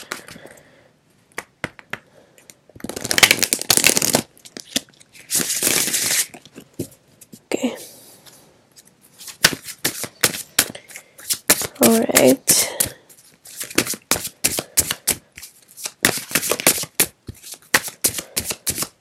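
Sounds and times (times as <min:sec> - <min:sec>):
cards tapping and flicking: 0:01.4 - 0:02.1, 0:02.8 - 0:04.7, 0:09.3 - 0:13.0, 0:13.6 - 0:19.0
cards riffling: 0:02.8 - 0:06.5, 0:13.5 - 0:19.0.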